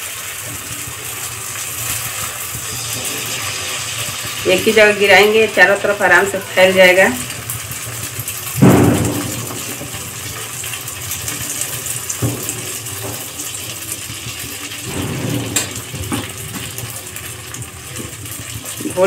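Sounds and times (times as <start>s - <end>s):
batter sizzling in hot oil: 0.0s - 19.0s
ladle scraping a pan: 1.9s - 4.5s.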